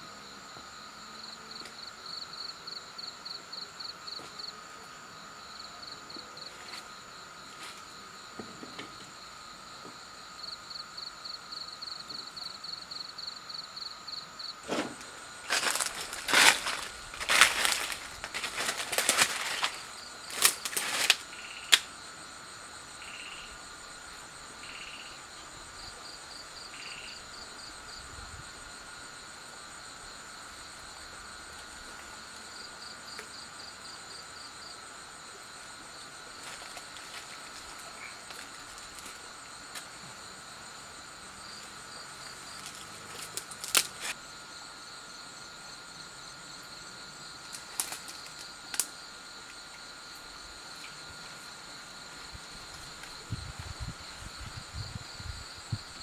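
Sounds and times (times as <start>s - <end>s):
crickets trilling and chirping: 0.0s - 56.0s
dry leaves and twigs crackling: 14.7s - 21.9s, 36.2s - 40.0s, 41.6s - 44.2s, 47.5s - 49.0s.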